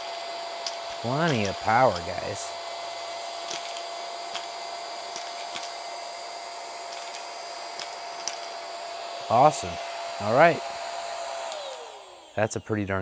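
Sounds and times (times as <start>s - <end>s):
handheld vacuum running: 0.0s - 13.0s
coins clicking into vacuum: 0.6s - 2.5s, 3.4s - 4.5s, 5.1s - 5.8s, 6.8s - 8.6s.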